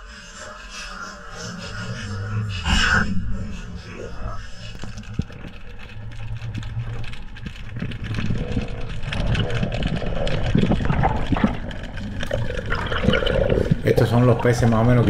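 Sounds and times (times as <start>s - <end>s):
underwater low rumble: 1.7s - 15.0s
small crackling clicks: 3.8s - 15.0s
water rushing: 10.5s - 15.0s.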